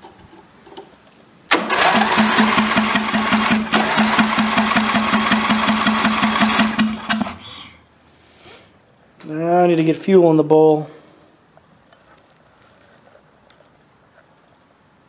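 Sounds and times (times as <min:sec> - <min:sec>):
engine cranking with starter: 0:01.5 - 0:07.5.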